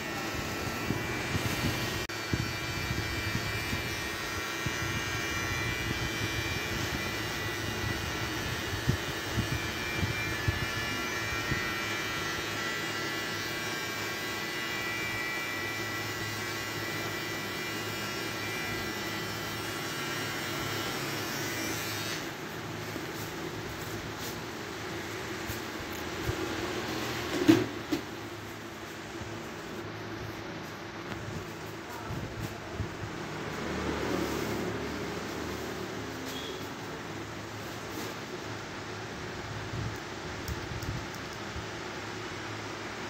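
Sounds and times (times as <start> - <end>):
electric trimmer buzzing: 0.0 - 27.7.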